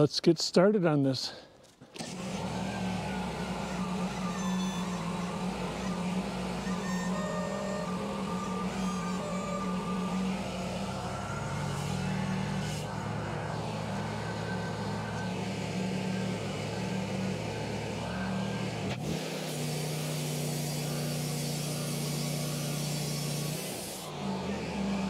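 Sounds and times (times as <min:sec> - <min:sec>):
sawmill engine running: 0:02.0 - 0:25.0
hiss: 0:19.0 - 0:24.1.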